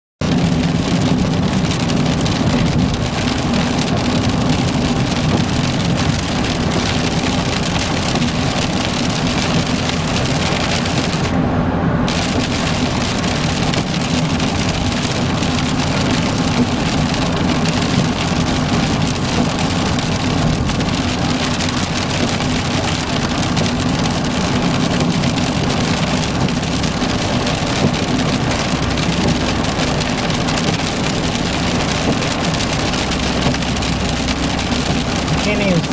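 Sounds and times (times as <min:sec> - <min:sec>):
heavy rain pelting a car: 0:00.2 - 0:35.9
low road drone: 0:00.2 - 0:35.9
tyres hissing on wet road: 0:12.0 - 0:35.9.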